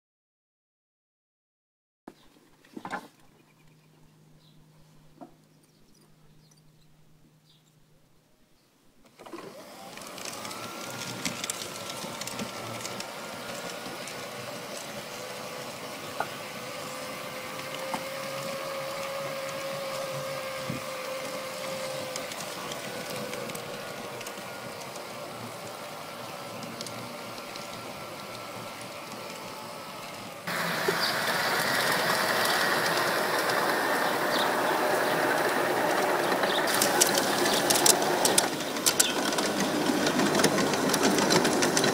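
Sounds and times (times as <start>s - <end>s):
model train motor whine: 9.1s - 41.9s
model wagons rolling on track: 9.1s - 41.9s
wheels clicking on rail joints: 9.1s - 41.9s.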